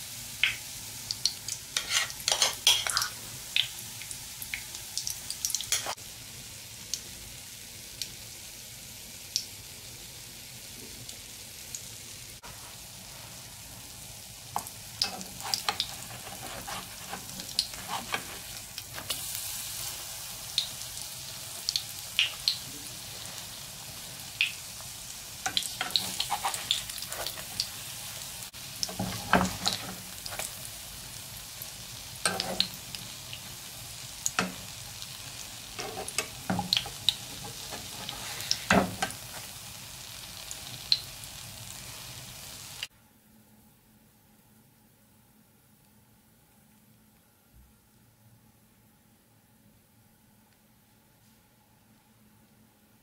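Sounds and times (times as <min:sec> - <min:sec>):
fritters sizzling in oil: 0:00.0 - 0:42.9
metal utensils scraping pan: 0:01.8 - 0:03.1, 0:15.0 - 0:19.2, 0:25.5 - 0:27.6, 0:35.8 - 0:36.6, 0:37.3 - 0:39.2.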